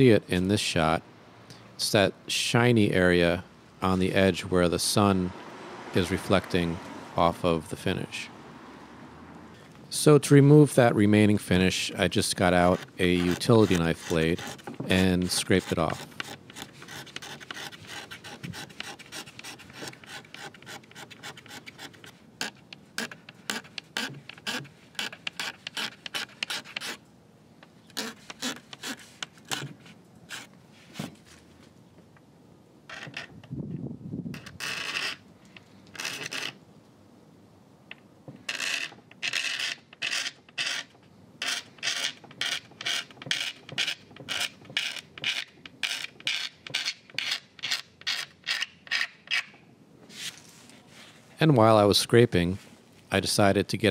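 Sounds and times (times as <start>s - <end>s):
knife blade scraping wood: 11.4s - 27.1s, 27.7s - 31.5s, 32.9s - 33.5s, 34.3s - 36.6s, 37.9s - 50.8s.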